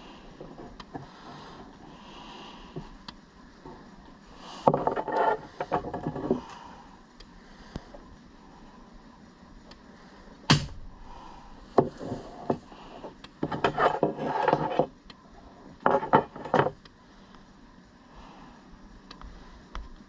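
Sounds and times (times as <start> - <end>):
handling on wooden table: 0.4 - 1.7, 4.6 - 6.5, 11.8 - 14.9, 15.8 - 16.8
spring launcher snap: 10.5 - 10.9.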